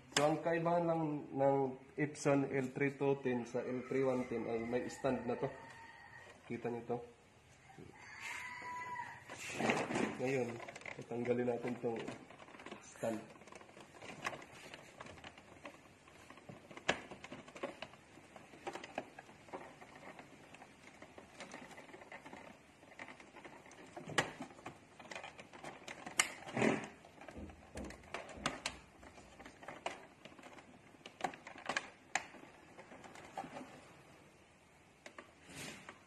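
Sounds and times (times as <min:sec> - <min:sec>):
hands clicking and knocking plastic: 0:09.4 - 0:36.0.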